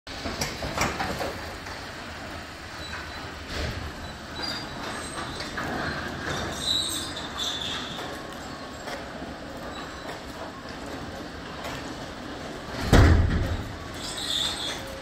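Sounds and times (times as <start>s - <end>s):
high metallic squeals: 4.0s - 8.8s, 13.9s - 15.0s.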